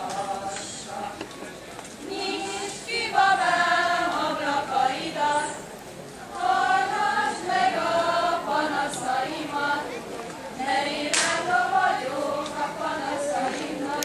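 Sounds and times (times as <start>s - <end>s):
women singing folk song: 0.0s - 5.7s, 6.3s - 9.9s, 10.6s - 14.0s.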